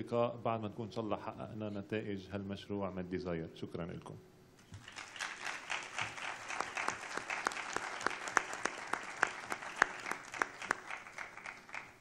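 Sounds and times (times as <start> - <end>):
audience applause: 4.7 - 12.0.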